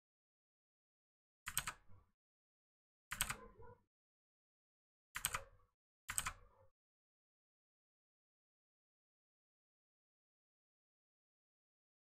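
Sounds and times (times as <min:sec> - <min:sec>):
computer keyboard clicking: 0:06.1 - 0:06.4.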